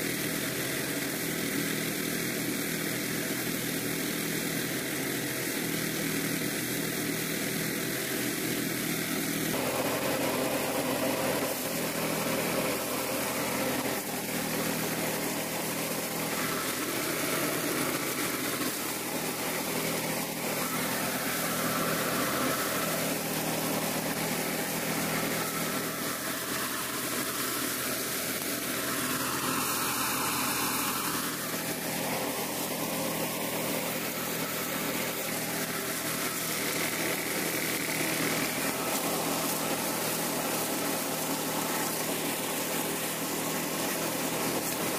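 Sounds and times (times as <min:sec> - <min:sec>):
small engine running: 0:00.0 - 0:44.9.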